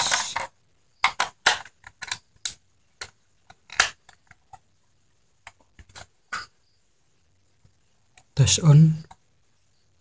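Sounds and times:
sharp plastic clicks and knocks: 0.0 - 4.6.

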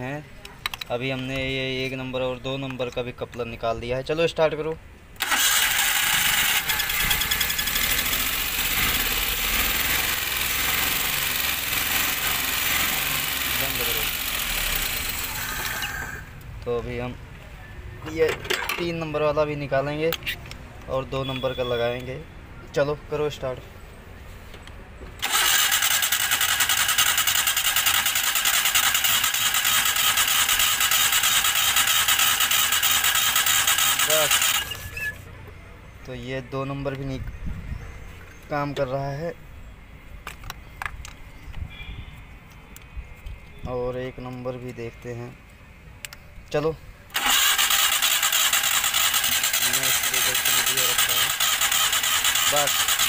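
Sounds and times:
misfiring car engine running: 5.2 - 15.7, 25.2 - 34.8, 47.1 - 53.0.

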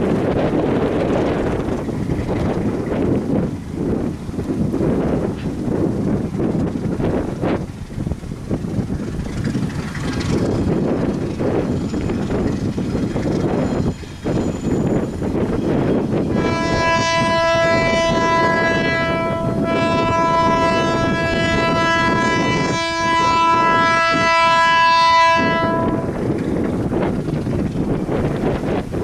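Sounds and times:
locomotive engine rumble: 0.0 - 29.0
locomotive air horn: 16.2 - 26.3.

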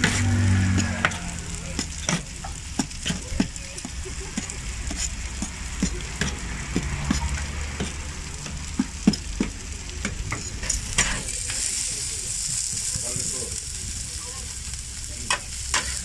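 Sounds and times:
metal spatula scraping meat: 0.0 - 9.5, 15.7 - 16.0
onions sizzling on a griddle: 0.0 - 16.0.

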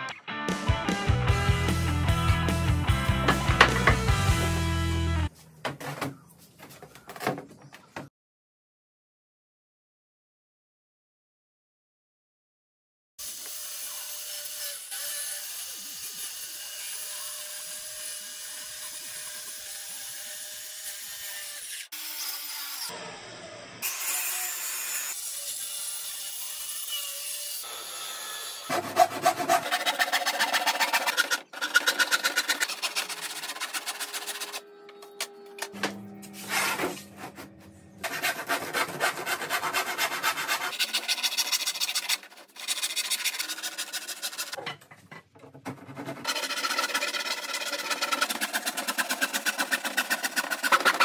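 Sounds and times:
circular saw cutting plywood: 13.2 - 44.6, 45.6 - 51.0
handsaw cutting plywood: 23.9 - 34.6, 38.0 - 44.6, 45.6 - 51.0.

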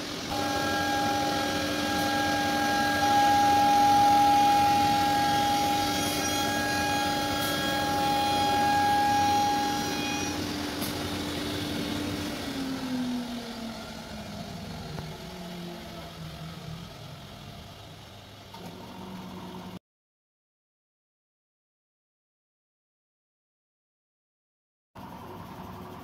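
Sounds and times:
high machine tones: 0.0 - 15.9
cnc router whining: 0.0 - 19.8.

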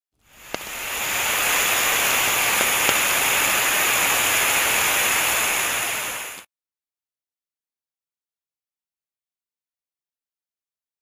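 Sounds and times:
loud hissing rush of noise: 0.2 - 6.5
sharp crackle: 0.2 - 6.5.

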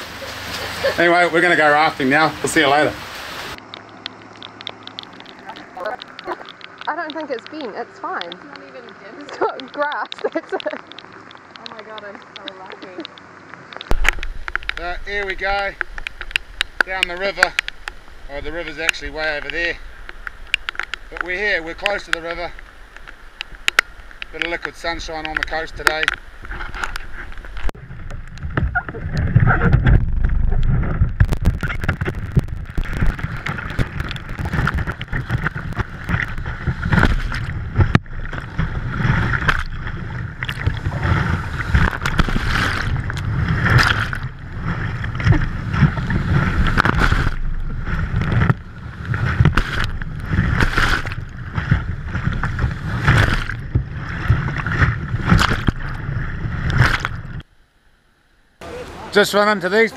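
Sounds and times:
whitewater rushing: 0.0 - 4.1
surging splashes: 0.0 - 57.5.

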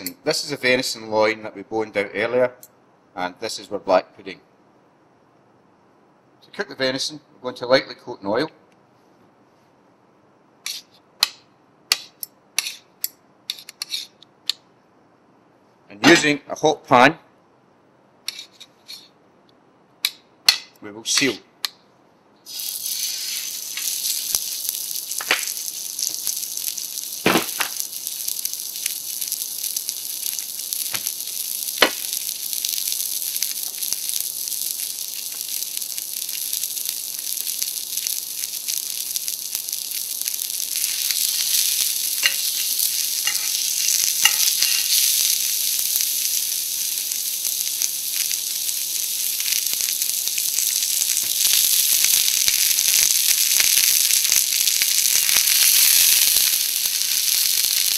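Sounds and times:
meat sizzling in a frying pan: 22.5 - 57.9.

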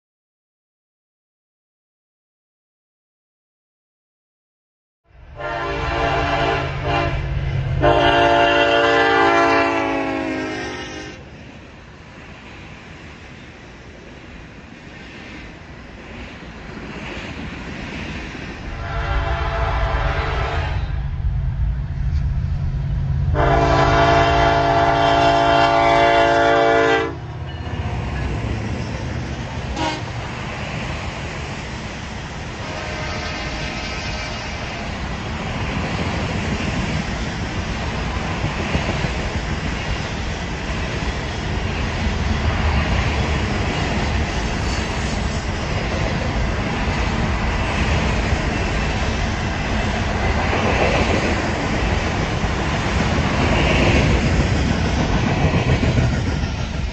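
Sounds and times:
rail cars rumbling and clattering: 5.1 - 56.9
locomotive horn blast: 5.4 - 11.2, 18.8 - 21.0, 23.3 - 27.2, 29.7 - 30.1, 32.6 - 34.7
diesel engine rumble: 21.0 - 24.9.

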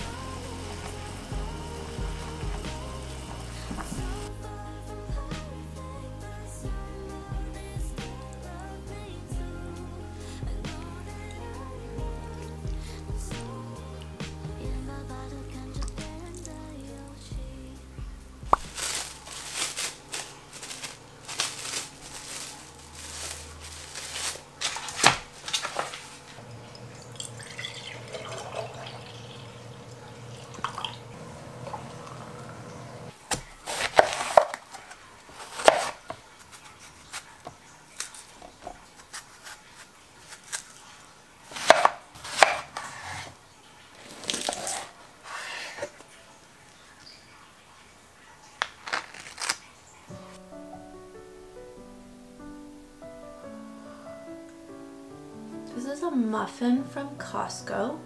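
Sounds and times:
liquid pouring from carton: 23.1 - 32.4
knife cutting onto board: 41.5 - 43.3.

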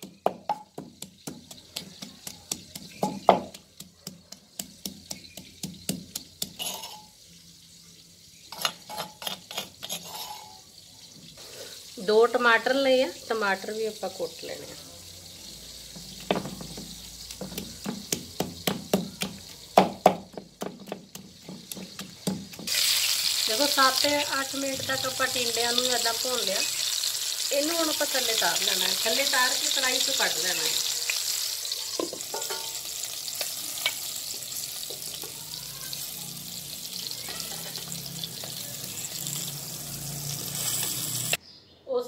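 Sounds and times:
pestle pounding in mortar: 0.0 - 6.6, 16.2 - 22.8
hot oil sizzling: 0.0 - 41.4
spoon clinking against pot: 4.8 - 7.2, 8.5 - 10.6, 32.0 - 32.8.

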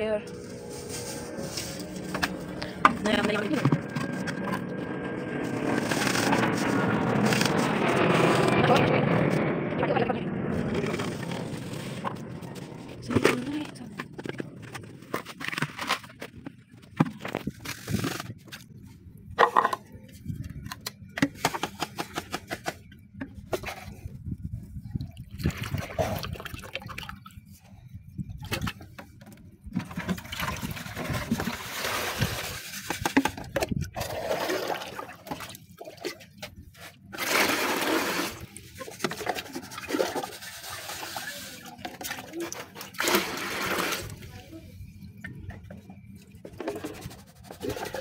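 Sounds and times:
plastic containers clattering: 19.4 - 20.0, 28.5 - 35.5
water splashing from a bowl: 25.0 - 27.3.

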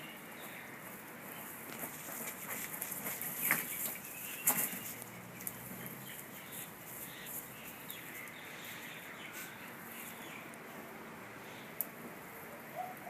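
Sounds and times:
outdoor background noise: 0.0 - 13.0
faint bird calls: 12.5 - 13.0.

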